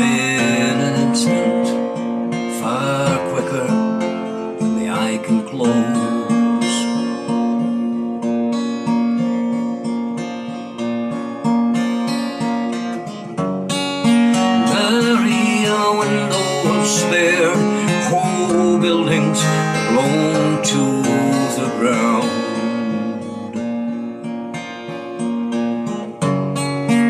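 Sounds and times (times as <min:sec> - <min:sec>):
man singing: 0:00.0 - 0:08.1, 0:14.2 - 0:24.1
acoustic guitar with reverb: 0:00.0 - 0:27.0.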